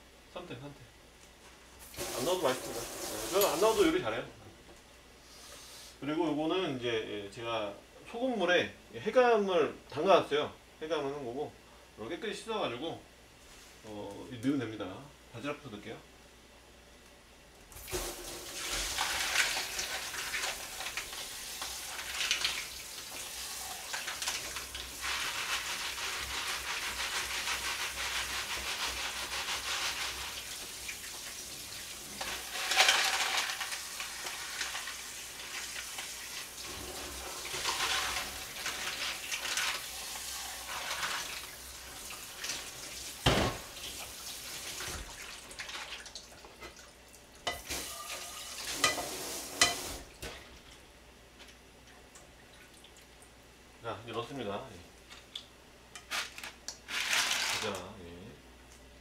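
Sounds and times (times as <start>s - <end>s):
pot boiling hard: 1.8s - 4.1s, 17.8s - 50.1s.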